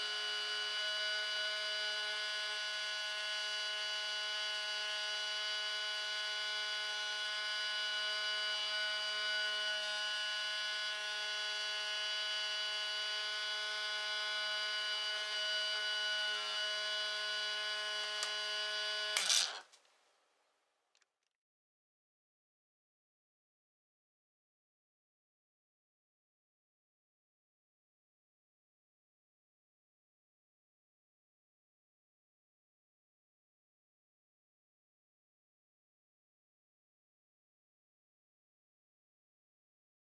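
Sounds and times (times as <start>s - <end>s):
magnet rotor whining: 16.2s - 19.7s.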